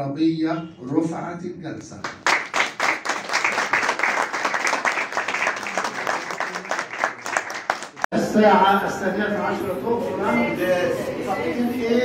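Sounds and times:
crowd applause: 0:02.2 - 0:08.1.

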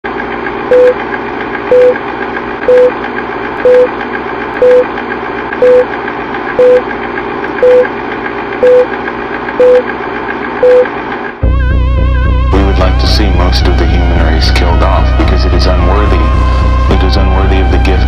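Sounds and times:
mechanical hum: 0:00.1 - 0:18.0
electronic beep: 0:01.7 - 0:02.0, 0:02.7 - 0:02.9, 0:03.6 - 0:03.9, 0:04.6 - 0:04.9, 0:05.6 - 0:05.9, 0:06.6 - 0:06.8, 0:07.6 - 0:07.9, 0:08.6 - 0:08.9, 0:09.6 - 0:09.8, 0:10.6 - 0:10.9.

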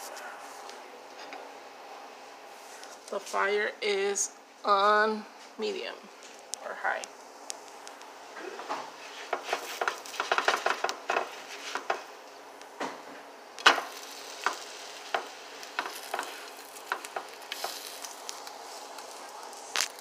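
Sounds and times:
quesadillas sizzling in a frying pan: 0:07.2 - 0:20.0.

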